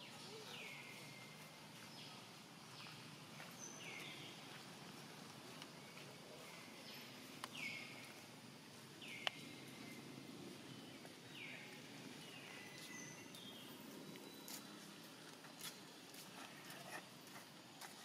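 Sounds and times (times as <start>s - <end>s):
outdoor ambience: 0.0s - 18.0s.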